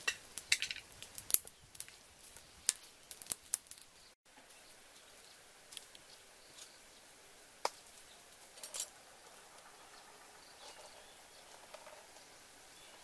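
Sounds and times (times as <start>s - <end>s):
dry leaves rustling underfoot: 0.0s - 10.0s
faint outdoor hiss: 0.0s - 13.0s.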